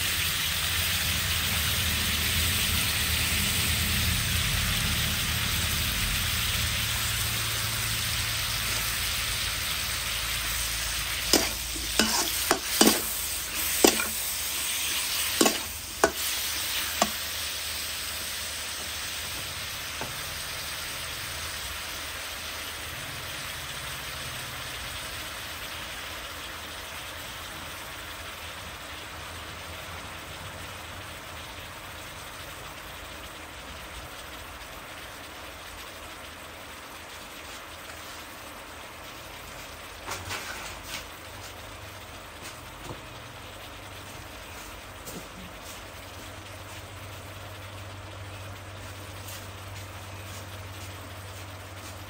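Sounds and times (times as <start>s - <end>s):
meat sizzling in a wok: 0.0s - 52.0s
metal spatula knocking on wok: 15.4s - 16.2s.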